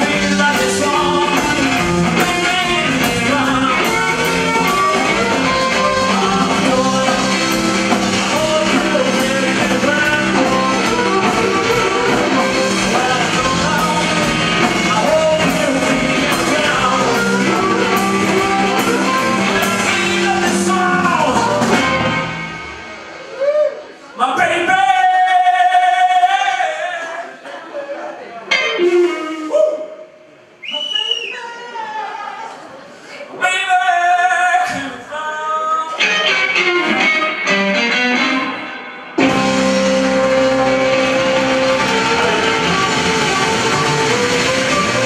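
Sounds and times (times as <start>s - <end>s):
person singing: 0.0s - 22.2s, 39.2s - 45.0s
bass guitar: 0.0s - 23.7s, 36.0s - 45.0s
electric guitar: 0.0s - 23.8s, 35.9s - 45.0s
drums: 0.0s - 27.2s, 28.4s - 45.0s.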